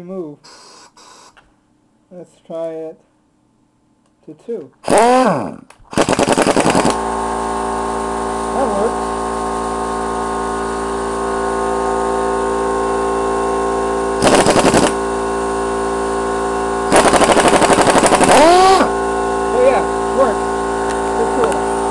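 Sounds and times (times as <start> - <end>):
steady hum: 0.0 - 21.9
air impact wrench hammering: 4.8 - 5.3, 5.9 - 7.1, 14.2 - 15.3, 16.9 - 19.0.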